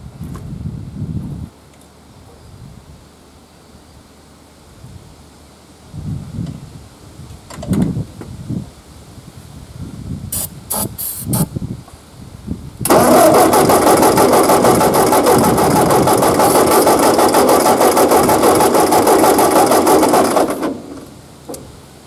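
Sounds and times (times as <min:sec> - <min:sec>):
spray can hissing: 0:10.3 - 0:11.5
engine cranking on starter: 0:12.8 - 0:21.6.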